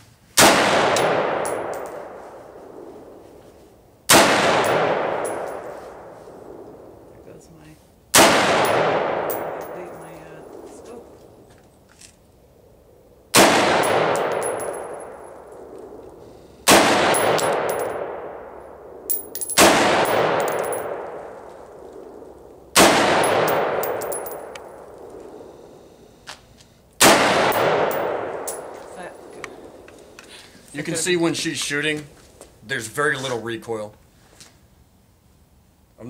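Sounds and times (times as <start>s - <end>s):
rifle shots echoing: 0.4s - 3.2s, 4.1s - 6.9s, 8.1s - 10.7s, 13.3s - 16.0s, 16.6s - 25.6s, 27.0s - 29.8s.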